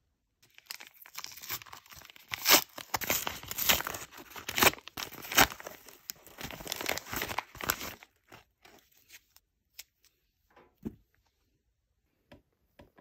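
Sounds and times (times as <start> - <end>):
paper bag tearing: 0.6 - 8.0.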